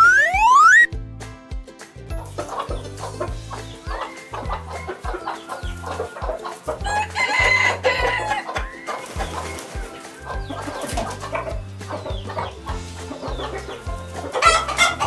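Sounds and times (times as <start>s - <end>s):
background music with bass line: 0.0s - 15.0s
chickens clucking: 2.1s - 15.0s
rooster crowing: 6.8s - 8.5s.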